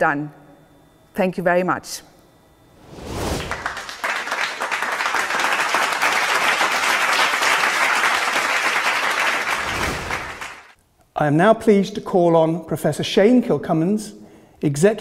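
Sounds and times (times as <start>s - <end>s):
crowd applause: 3.4s - 10.8s.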